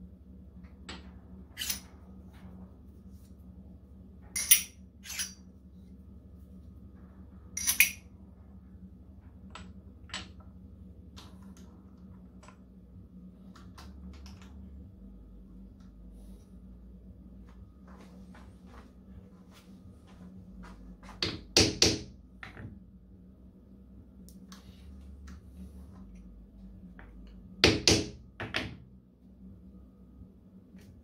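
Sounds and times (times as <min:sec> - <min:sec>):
faint steady hum: 0:00.0 - 0:31.0
metal parts clinking in a vise: 0:01.5 - 0:02.0, 0:04.3 - 0:05.4, 0:07.6 - 0:08.0.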